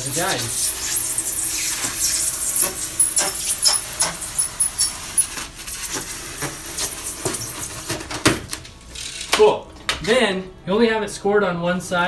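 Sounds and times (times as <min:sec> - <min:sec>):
knife scraping foam board: 0:01.7 - 0:07.8.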